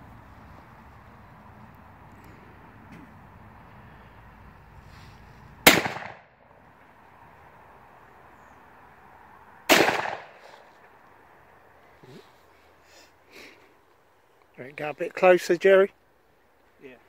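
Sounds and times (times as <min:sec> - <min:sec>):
shotgun shots with echo: 0:05.6 - 0:06.3, 0:09.7 - 0:10.5.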